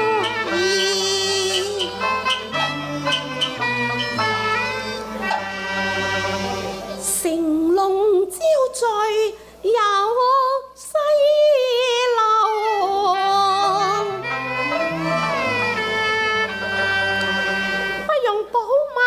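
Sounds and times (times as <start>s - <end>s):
woman singing opera: 0.0s - 3.1s, 6.9s - 15.2s, 18.0s - 19.0s
instrumental accompaniment: 0.0s - 7.7s, 12.4s - 18.2s.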